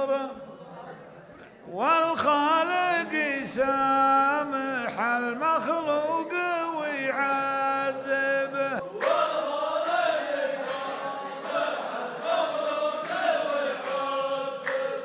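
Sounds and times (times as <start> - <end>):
men chanting in unison: 1.7 - 15.0
men clapping together: 8.8 - 15.0.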